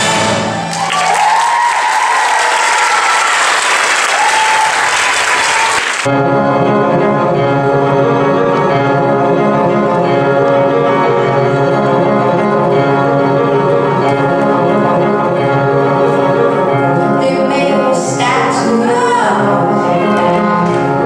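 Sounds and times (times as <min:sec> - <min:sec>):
audience applauding and cheering: 0:00.0 - 0:06.1
high whoops: 0:00.6 - 0:05.9.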